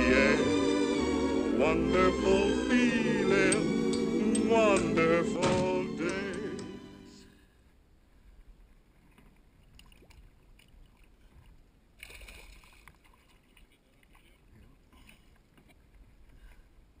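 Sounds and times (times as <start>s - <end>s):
light water noises: 7.4s - 17.0s
small splash in water: 9.1s - 11.2s.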